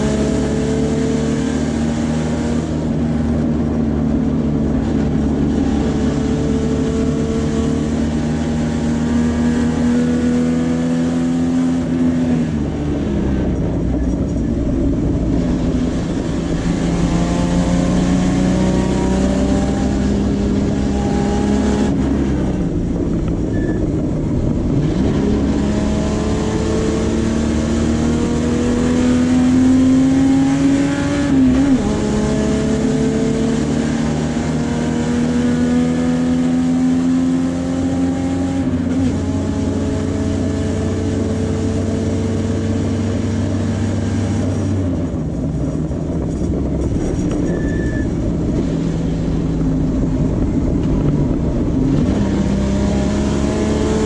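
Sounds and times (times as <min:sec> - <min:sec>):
race car engine at full throttle: 0:00.0 - 0:54.0.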